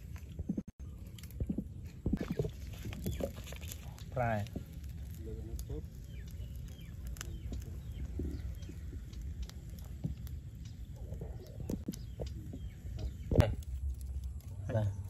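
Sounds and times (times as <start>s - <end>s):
low rumble: 0.0s - 15.0s
faint bird chirps: 5.6s - 13.6s.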